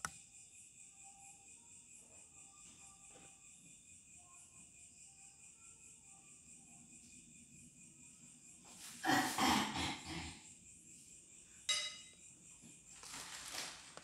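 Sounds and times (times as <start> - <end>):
crickets chirping: 0.0 - 14.0
ringing clink: 11.7 - 12.2
person sitting down on tiled floor: 12.6 - 14.0.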